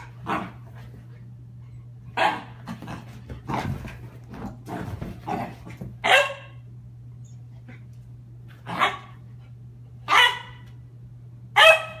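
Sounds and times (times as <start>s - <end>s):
puppy barking: 6.0s - 6.6s, 8.7s - 9.1s, 10.1s - 10.6s, 11.6s - 12.0s.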